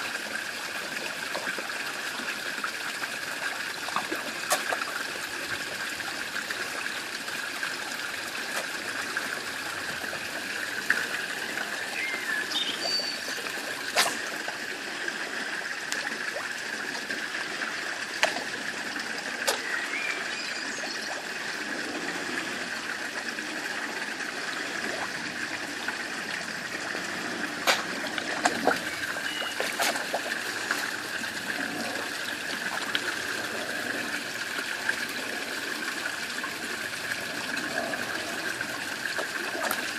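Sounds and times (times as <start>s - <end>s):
water trickling into pond: 0.0s - 39.9s
fish splashing at surface: 4.0s - 5.0s, 13.2s - 14.6s, 27.5s - 32.0s.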